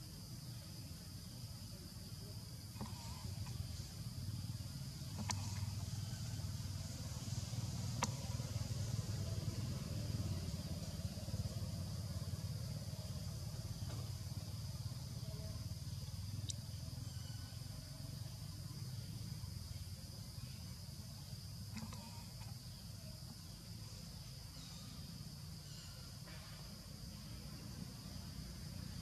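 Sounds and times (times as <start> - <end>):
high-pitched insect drone: 0.0 - 29.0
faint clicks: 5.1 - 5.7, 7.9 - 8.6, 21.7 - 22.6.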